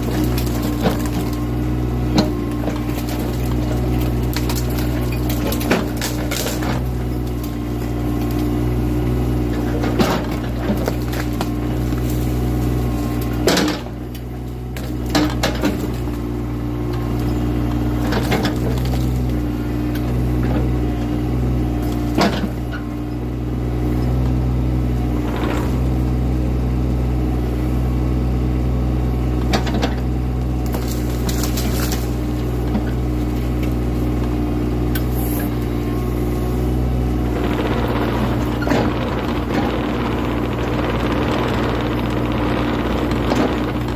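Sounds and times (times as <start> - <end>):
branches cracking and snapping: 0.0 - 16.4, 29.5 - 43.9
excavator diesel engine running: 0.0 - 43.9.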